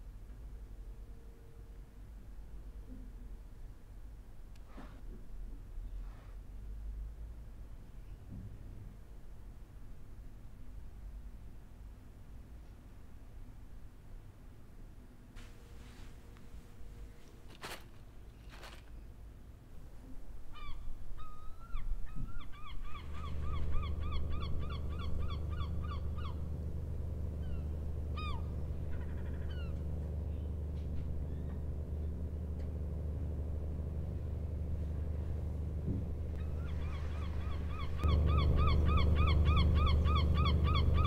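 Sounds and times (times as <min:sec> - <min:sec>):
gulls calling: 0:20.6 - 0:30.6, 0:36.3 - 0:41.0
boat engine droning: 0:22.7 - 0:41.0.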